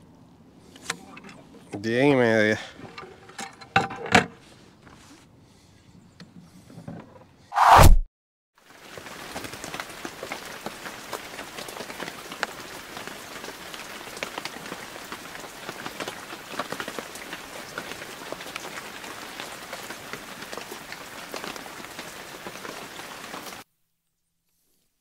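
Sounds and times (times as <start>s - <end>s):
rain falling: 8.6s - 23.7s.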